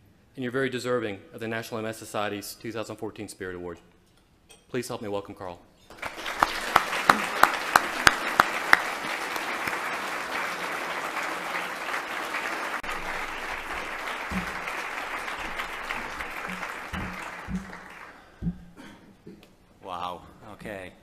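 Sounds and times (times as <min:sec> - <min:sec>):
audience applauding: 0:05.9 - 0:18.3
loud close claps: 0:05.9 - 0:18.8.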